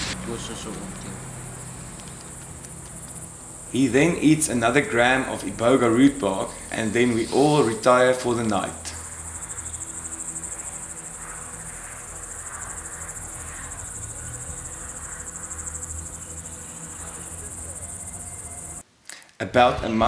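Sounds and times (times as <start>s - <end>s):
crickets chirring: 0.0s - 18.8s.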